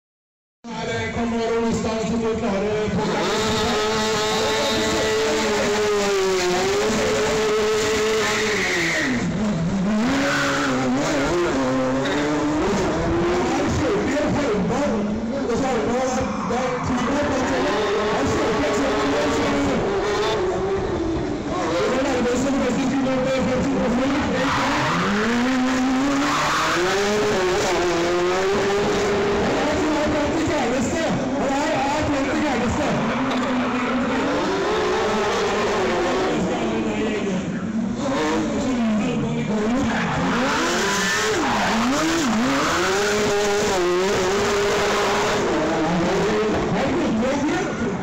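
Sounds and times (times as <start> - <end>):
racing car engine revving: 0.9 - 48.0
tyre squeal: 8.2 - 9.3
tyres squealing on tarmac: 8.2 - 9.4, 24.1 - 27.2, 39.7 - 43.4
motorcycle engine revving: 37.9 - 47.6.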